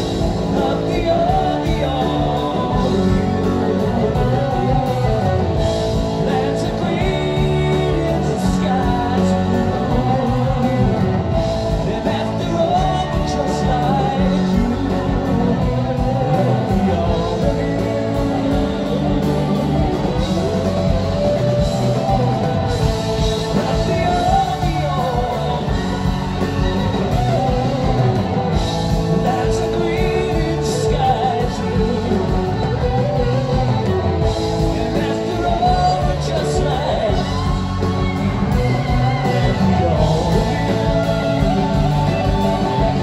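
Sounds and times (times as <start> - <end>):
bass guitar: 0.0 - 43.0
drums: 0.0 - 43.0
electric guitars: 0.0 - 43.0
keyboards: 0.0 - 43.0.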